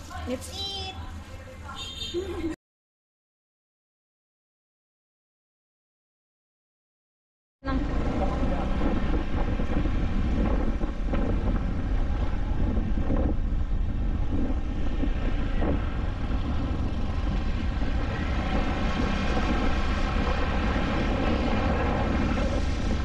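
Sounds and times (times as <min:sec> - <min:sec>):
wind buffeting microphone: 0:07.6 - 0:23.0.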